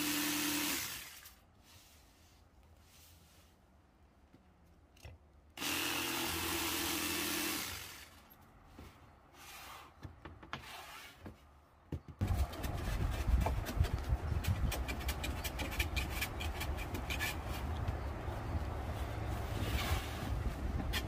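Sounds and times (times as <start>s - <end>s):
jigsaw cutting through wood: 0.0s - 1.3s, 5.6s - 8.2s.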